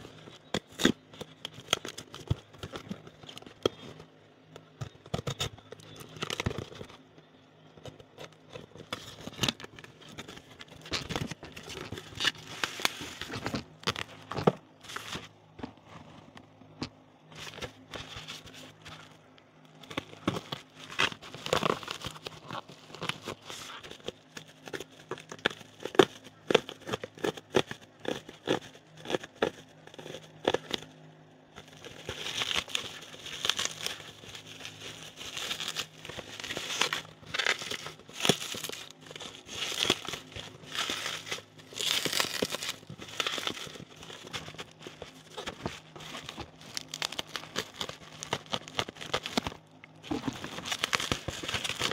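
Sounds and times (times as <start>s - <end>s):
bubble wrap crinkling: 7.8s - 15.8s, 17.3s - 31.0s, 31.6s - 51.9s
bubble wrap popping: 31.6s - 51.9s.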